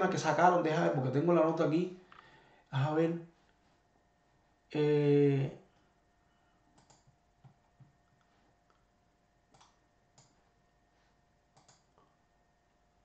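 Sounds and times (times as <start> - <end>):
faint computer clicks: 6.7 - 7.9, 9.5 - 10.4, 11.5 - 12.1.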